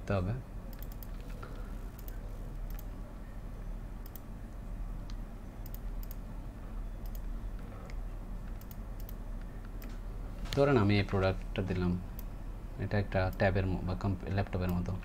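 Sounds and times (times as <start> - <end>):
steady low hum: 0.0 - 15.0
computer mouse clicking: 0.7 - 2.9, 4.0 - 4.3, 5.0 - 6.2, 7.0 - 10.7.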